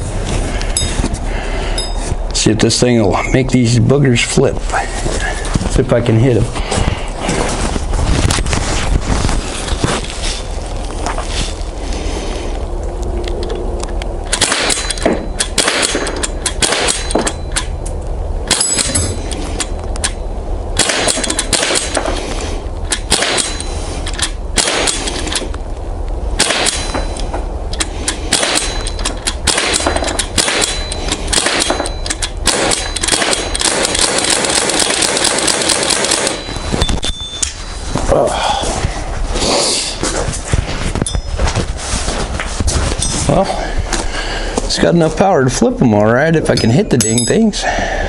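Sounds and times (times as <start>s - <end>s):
air pistol shots: 14.3s - 17.4s, 20.8s - 22.1s, 22.9s - 23.6s, 24.6s - 25.5s, 26.4s - 27.0s, 27.8s - 36.5s.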